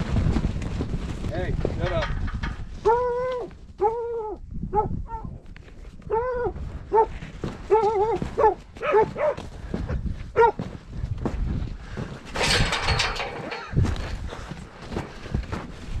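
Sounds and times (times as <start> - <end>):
dog barking: 6.1 - 7.1, 7.7 - 9.4, 10.4 - 10.6.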